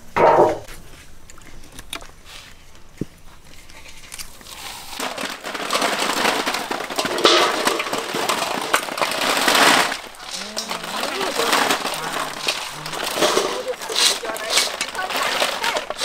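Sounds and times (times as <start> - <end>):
snail shells rattling in metal basin: 4.9 - 16.0.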